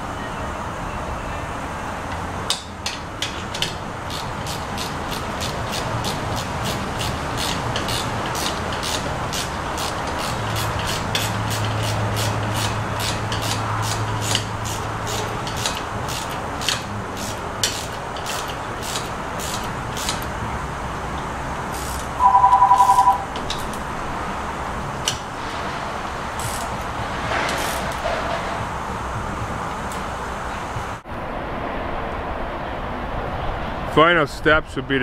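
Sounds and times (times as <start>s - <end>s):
shop noise: 0.0s - 31.1s
ratchet wrench clicking: 2.5s - 20.3s, 21.7s - 22.2s, 26.4s - 26.9s, 27.5s - 28.0s
electronic two-tone beep: 22.2s - 23.3s.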